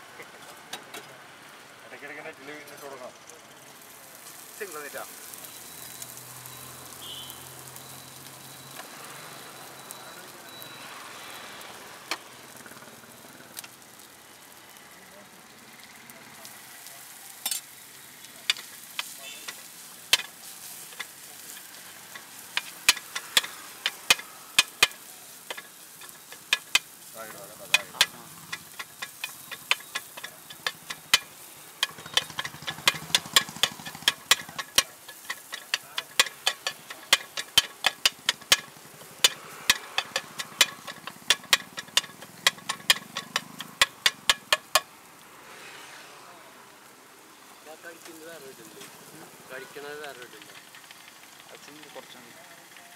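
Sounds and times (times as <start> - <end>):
food sizzling: 0.0 - 52.9
metal spatula striking a pan: 18.4 - 44.9.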